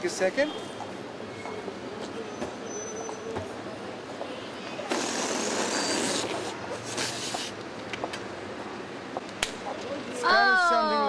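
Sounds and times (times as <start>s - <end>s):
street background noise: 0.0s - 11.0s
air hissing out of balloon: 4.9s - 7.6s.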